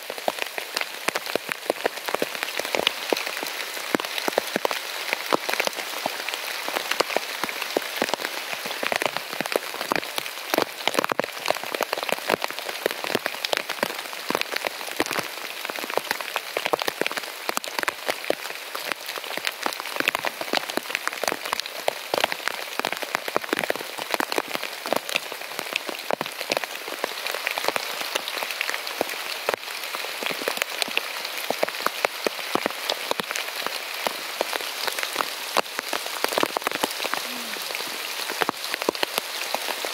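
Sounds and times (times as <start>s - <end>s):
heavy rain on a tent: 0.0s - 39.9s.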